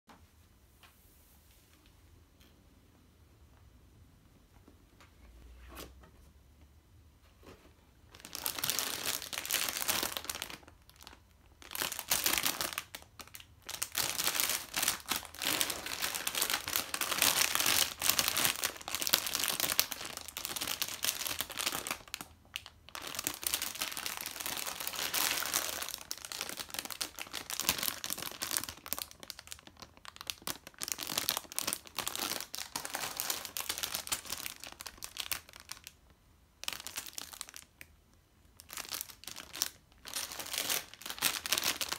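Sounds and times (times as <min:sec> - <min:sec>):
plastic bags crinkling: 0:08.1 - 0:36.0, 0:36.6 - 0:37.9, 0:38.6 - 0:41.9.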